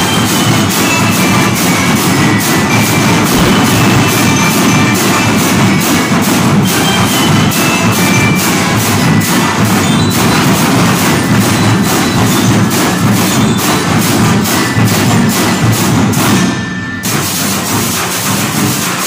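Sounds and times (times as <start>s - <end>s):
bell-like percussion: 0.0s - 19.0s
snare and bass drums: 0.0s - 19.0s
brass instruments playing: 1.6s - 7.8s.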